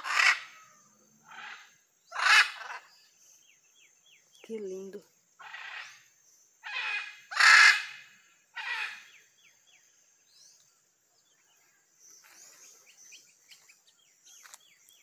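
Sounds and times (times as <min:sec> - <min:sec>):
macaws squawking: 0:00.0 - 0:02.8, 0:05.4 - 0:06.0, 0:06.6 - 0:09.1
small birds chirping: 0:00.0 - 0:15.0.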